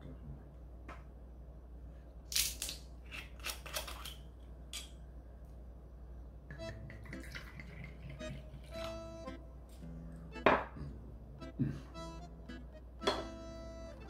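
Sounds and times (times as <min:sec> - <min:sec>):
light background music: 0:06.5 - 0:14.0.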